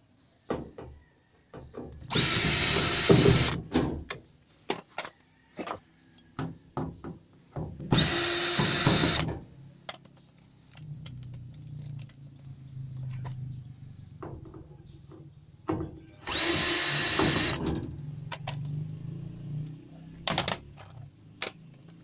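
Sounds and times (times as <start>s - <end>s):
cordless drill motor whine: 2.1s - 3.6s, 7.9s - 9.3s, 16.2s - 17.6s.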